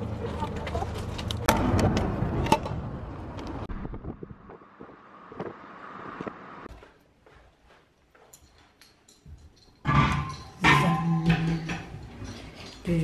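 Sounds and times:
car road and wind noise: 0.0 - 6.7.

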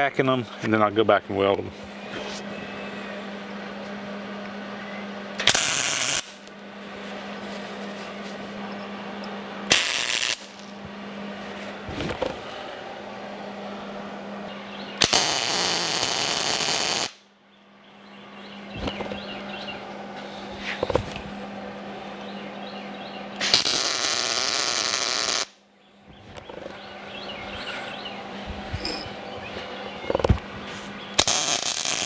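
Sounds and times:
welder low hum: 0.0 - 32.0
welding arc crackling: 5.4 - 6.5, 9.7 - 10.8, 15.0 - 17.2, 23.4 - 25.6, 31.2 - 32.0.

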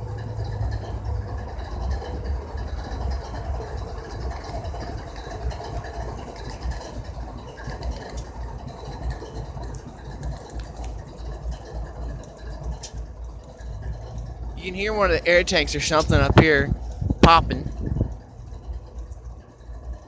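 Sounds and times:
locomotive engine idling: 0.0 - 20.0.

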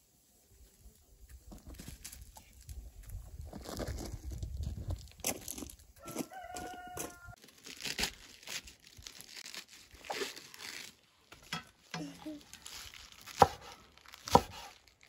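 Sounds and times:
cabbage leaves tearing: 5.0 - 11.5, 12.3 - 15.0.

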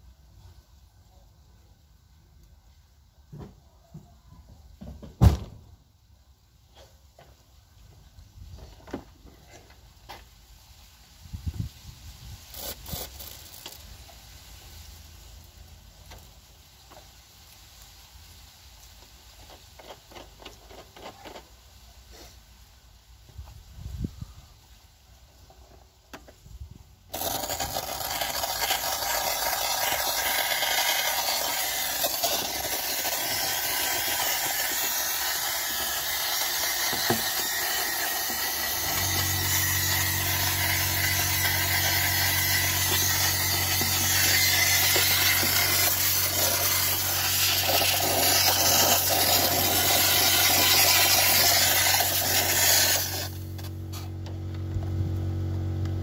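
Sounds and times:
steam cleaner hissing: 27.2 - 53.5
low hum: 53.3 - 56.0.

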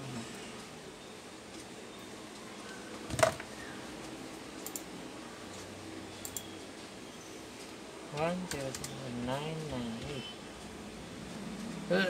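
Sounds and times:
steady low hum: 0.0 - 12.0
faint clicks: 4.6 - 4.9.

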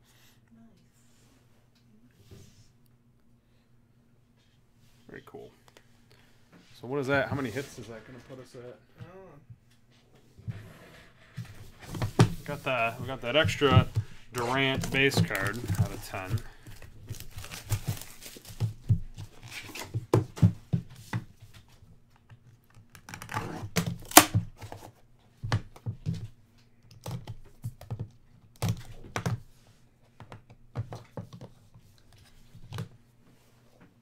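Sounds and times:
plastic card cases handled: 11.5 - 20.5
plastic wrap tearing and crinkling: 14.4 - 18.6.

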